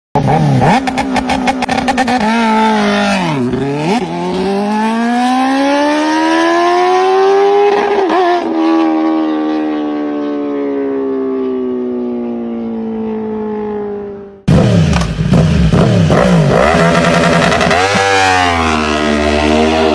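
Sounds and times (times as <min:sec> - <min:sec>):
motorcycle engine revving: 0:00.2 - 0:19.9.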